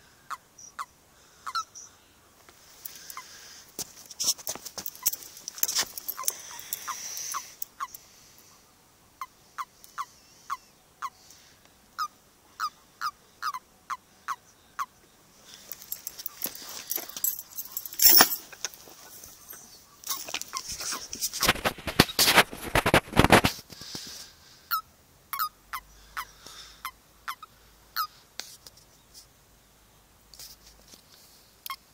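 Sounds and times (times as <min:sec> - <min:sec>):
toads croaking: 0:00.3 - 0:01.9, 0:04.9 - 0:08.2, 0:12.0 - 0:15.0, 0:24.7 - 0:28.2.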